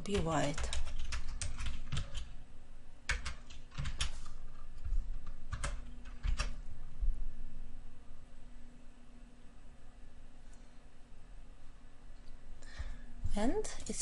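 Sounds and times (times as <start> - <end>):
computer keyboard keystrokes: 0.0 - 2.3, 3.1 - 6.6.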